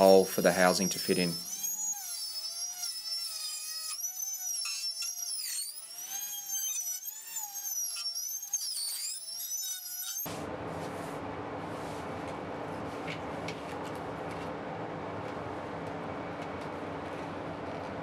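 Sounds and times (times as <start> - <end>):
router whining while cutting foam: 0.7 - 10.3.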